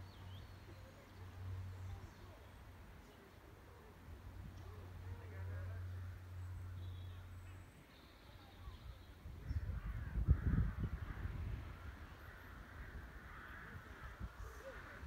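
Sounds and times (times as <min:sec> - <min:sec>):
distant birds calling: 0:03.8 - 0:15.0
harsh crow-like calls: 0:09.4 - 0:15.0.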